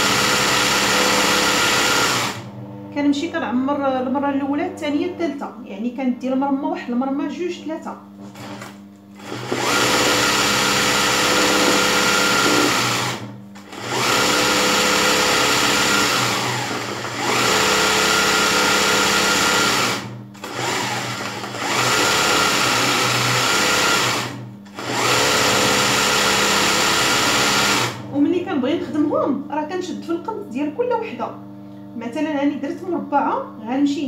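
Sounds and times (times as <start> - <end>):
sewing machine running fast: 0.0 - 2.5, 8.4 - 28.0.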